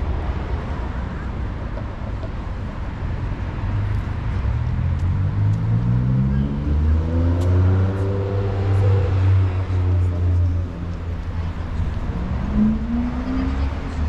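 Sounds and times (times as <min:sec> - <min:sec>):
street traffic: 0:00.0 - 0:14.0
vehicle engine accelerating: 0:04.4 - 0:14.0.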